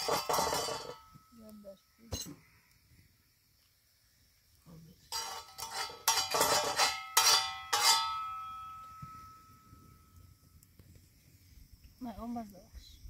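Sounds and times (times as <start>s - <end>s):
metal utensils clanking: 0.0s - 1.2s, 5.1s - 8.6s.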